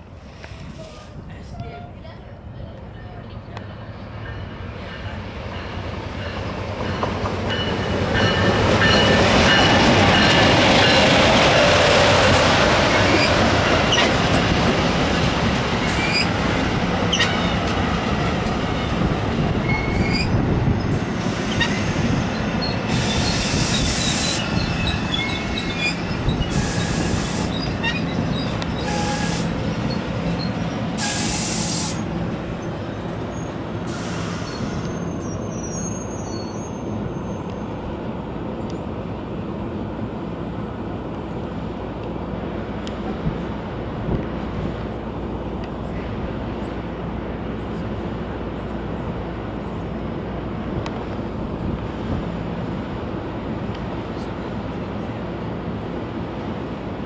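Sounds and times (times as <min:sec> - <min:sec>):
train coaches rumbling on rails: 0:00.0 - 0:57.0
high-pitched wheel squeals: 0:19.6 - 0:20.4, 0:21.5 - 0:31.3, 0:34.2 - 0:37.7.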